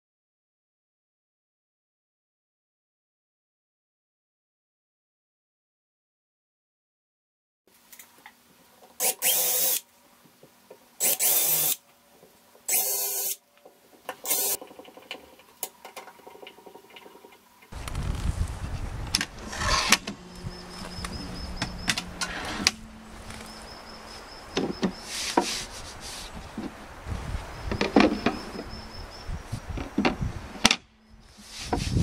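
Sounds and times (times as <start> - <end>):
cordless drill driving screws: 9.0 - 9.8, 11.0 - 11.8, 12.7 - 13.4, 14.2 - 14.6
high pulsing call: 20.0 - 26.4.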